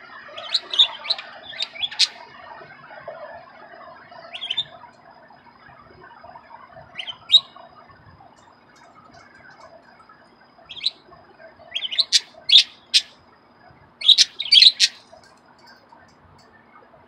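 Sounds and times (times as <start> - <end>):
budgerigars chirping: 0.4 - 2.2, 4.3 - 4.8, 7.0 - 7.6, 10.7 - 11.0, 11.7 - 13.2, 14.0 - 15.2.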